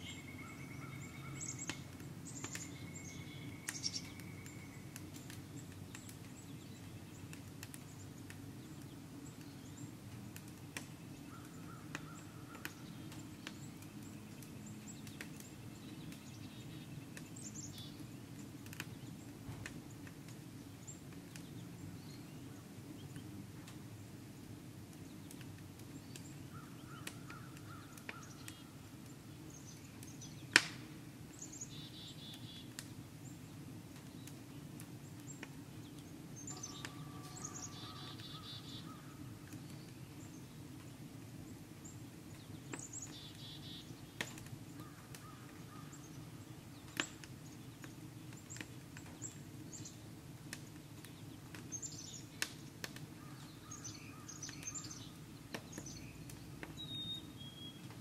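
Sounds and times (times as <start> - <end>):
small birds chirping: 0.0 - 23.4, 24.3 - 30.7, 31.3 - 58.0
fire crackling: 0.0 - 58.0
wood fire pop: 18.6 - 20.4, 30.5 - 30.9, 44.2 - 45.2, 46.9 - 49.4, 52.4 - 53.1.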